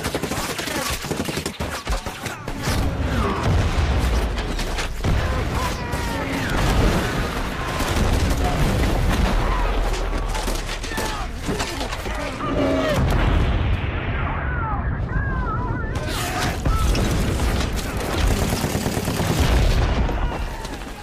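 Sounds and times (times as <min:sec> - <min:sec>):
rapid rifle and machine-gun fire: 0:00.0 - 0:21.0
heavy explosion booms: 0:03.0 - 0:04.4, 0:12.9 - 0:15.8.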